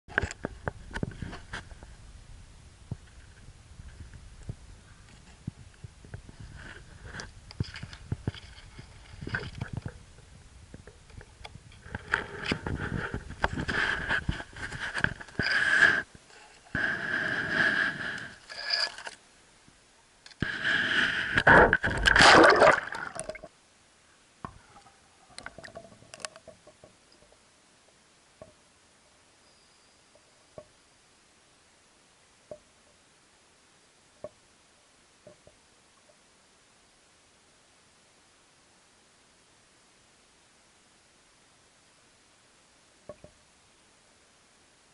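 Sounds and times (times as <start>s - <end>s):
camera scraping against grass: 11.7s - 19.2s, 20.4s - 22.4s
water sloshing and gurgling: 21.4s - 23.5s.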